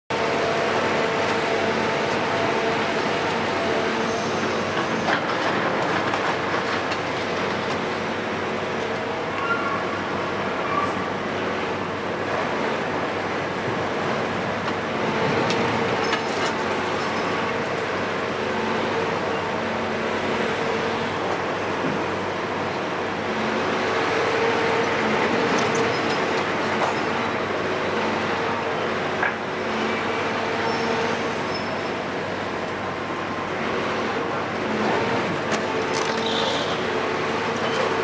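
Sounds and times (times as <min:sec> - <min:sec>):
excavator diesel and hydraulics droning: 0:00.1 - 0:38.0.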